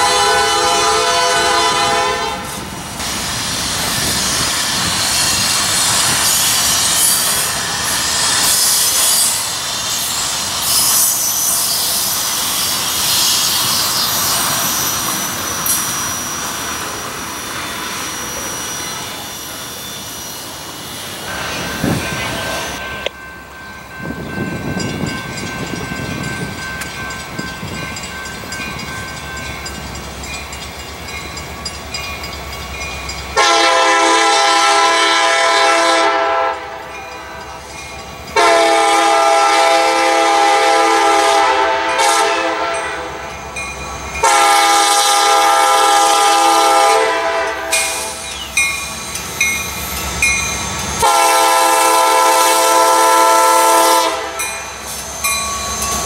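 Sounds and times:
locomotive air horn blasts: 0:00.0 - 0:02.6, 0:33.4 - 0:36.9, 0:38.4 - 0:43.2, 0:44.2 - 0:48.2, 0:51.0 - 0:54.4.

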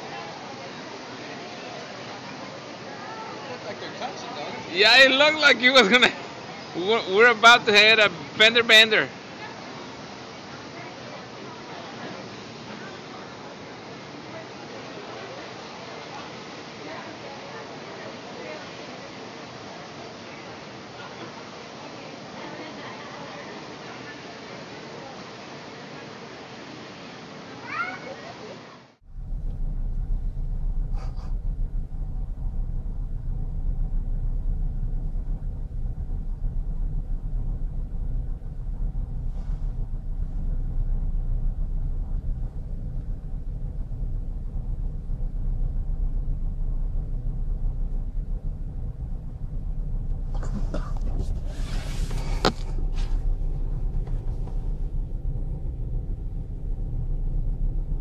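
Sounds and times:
faint steady hum: 0:00.0 - 0:58.0
ship machinery rumble: 0:29.0 - 0:58.0
wind rumble on microphone: 0:29.1 - 0:58.0.

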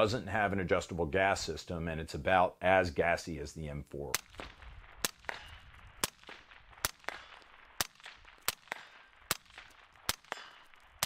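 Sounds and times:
suppressed rifle shots: 0:04.2 - 0:11.0.

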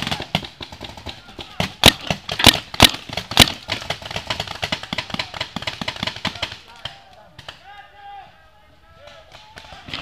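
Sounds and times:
paintball markers firing: 0:00.0 - 0:07.6
faint shouting: 0:06.3 - 0:10.0.

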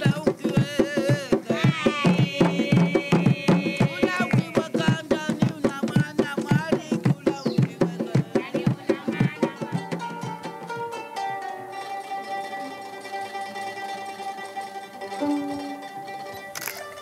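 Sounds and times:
fast drum beat: 0:00.0 - 0:10.7
woman singing: 0:00.2 - 0:10.5.

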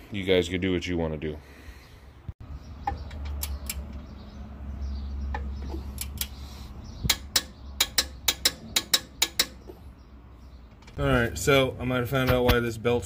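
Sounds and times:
ratchet wrench clicking: 0:05.8 - 0:06.4, 0:07.1 - 0:09.6.

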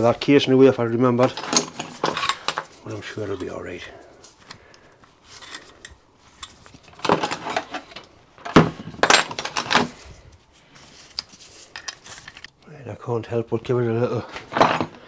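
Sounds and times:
metal tools clinking on workbench: 0:01.2 - 0:02.6, 0:09.0 - 0:09.9.

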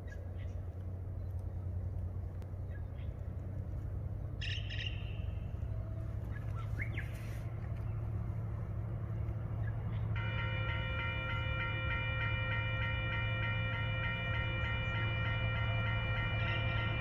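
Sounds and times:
distant train locomotive rumble: 0:00.0 - 0:17.0
birds chirping: 0:04.4 - 0:11.9.

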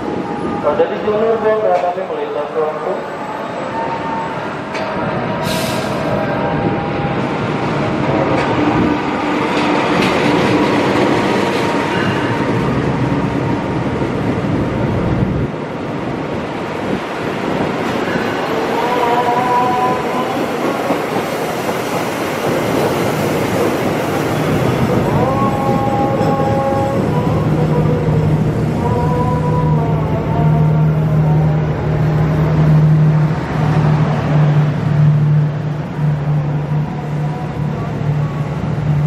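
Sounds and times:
locomotive engine rumble: 0:04.7 - 0:39.0
carriages clattering over rail joints: 0:19.1 - 0:28.2.

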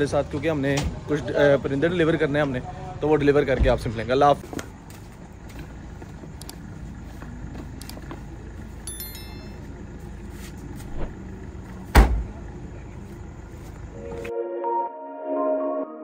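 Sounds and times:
car tailgate slamming: 0:11.9 - 0:12.4.

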